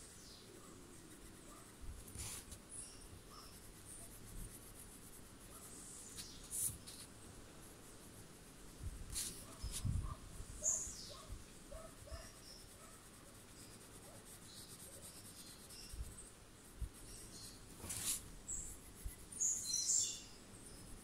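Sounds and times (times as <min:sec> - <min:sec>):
pencil scratching on paper: 0:00.0 - 0:07.1, 0:09.1 - 0:19.9.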